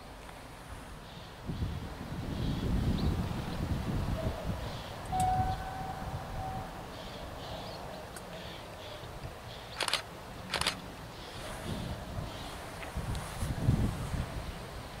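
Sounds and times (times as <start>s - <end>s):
wind buffeting microphone: 0.0s - 7.8s, 9.0s - 15.0s
short horn-like tone: 5.1s - 6.7s
birds chirping: 6.4s - 12.6s.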